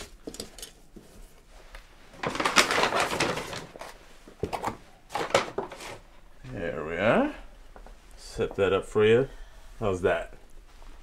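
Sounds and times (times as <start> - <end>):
rustling scrape: 5.1 - 6.1.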